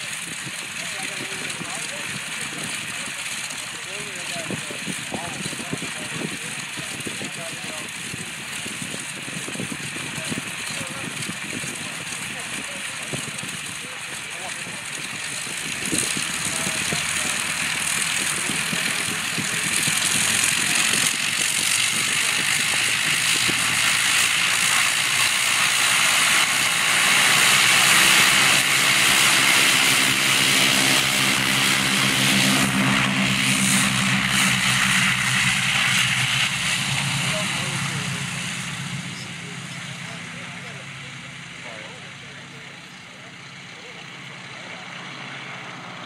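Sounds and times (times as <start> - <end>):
propeller aircraft engines running: 0.0 - 46.0
steady low drone: 12.2 - 46.0.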